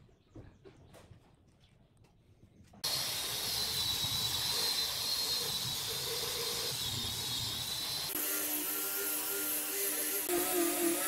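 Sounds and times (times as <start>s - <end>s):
angle grinder motor whine: 2.8s - 11.0s
disc sanding wood: 2.8s - 11.0s.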